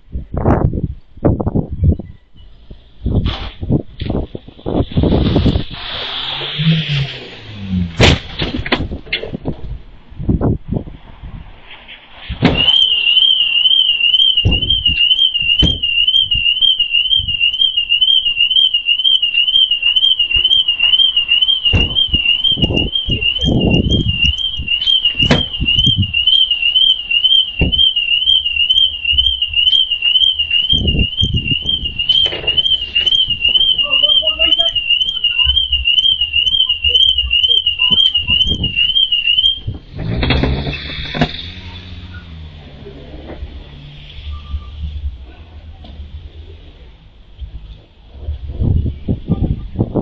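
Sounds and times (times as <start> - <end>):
car alarm warbling: 4.6 - 8.2, 12.4 - 42.9, 43.5 - 45.2.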